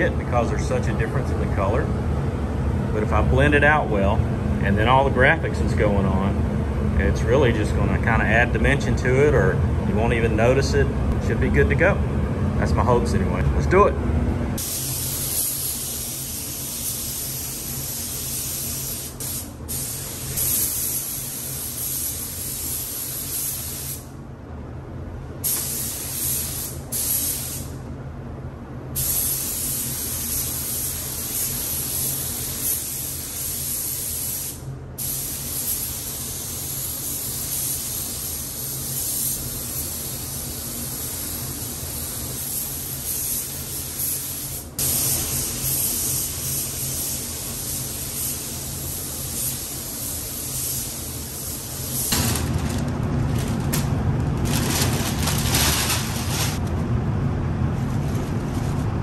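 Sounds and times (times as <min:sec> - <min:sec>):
steady low hum: 0:00.0 - 0:59.0
spray gun hissing: 0:14.6 - 0:24.1, 0:25.4 - 0:27.7, 0:29.0 - 0:52.2.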